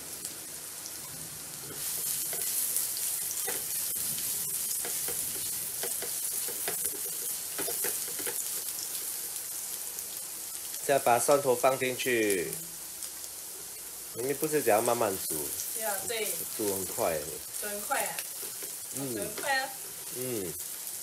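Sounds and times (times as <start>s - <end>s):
garlic sizzling in oil: 0.0s - 21.0s
spatula scraping a wok: 1.6s - 9.2s, 18.3s - 20.1s.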